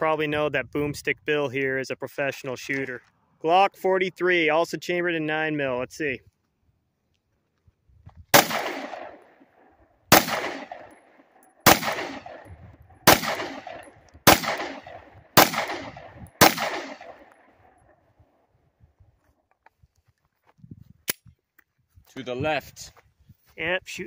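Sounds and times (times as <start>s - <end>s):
pistol shots with echo: 8.3s - 17.8s.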